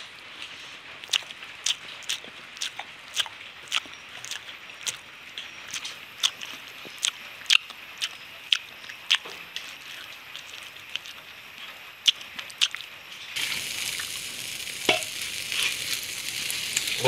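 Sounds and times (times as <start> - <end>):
wet chewing and lip smacking: 1.0 - 13.4
steady hiss: 5.2 - 17.0.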